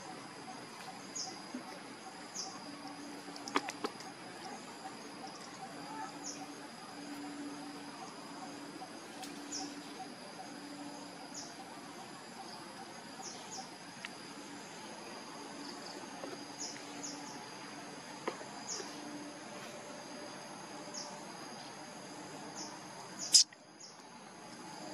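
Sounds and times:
high-pitched insect drone: 0.0s - 24.9s
short high chirps: 23.2s - 23.6s.

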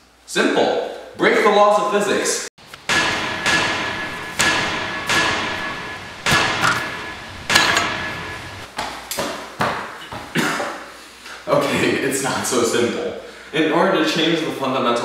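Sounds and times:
hard ringing whacks: 2.9s - 8.7s.

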